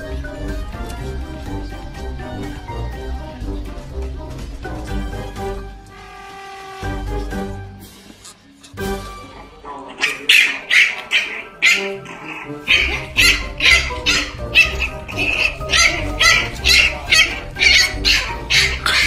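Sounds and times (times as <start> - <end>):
background music with low beat: 0.0 - 6.0, 6.9 - 9.6, 11.3 - 19.0
puppy squealing and yelping: 10.0 - 19.0.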